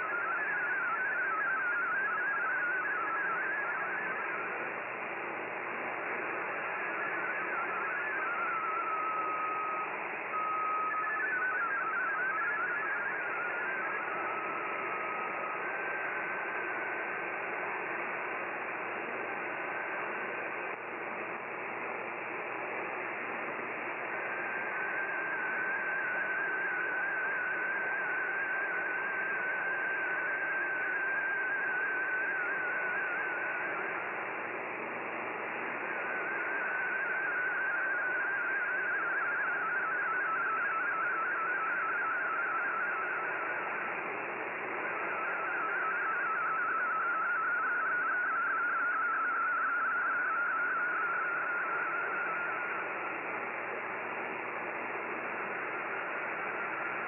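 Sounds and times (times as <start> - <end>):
wavering tone: 0.0 - 4.4, 6.8 - 16.8, 35.8 - 53.0
warbling digital data tones: 0.0 - 18.4, 24.0 - 34.3, 35.5 - 57.0.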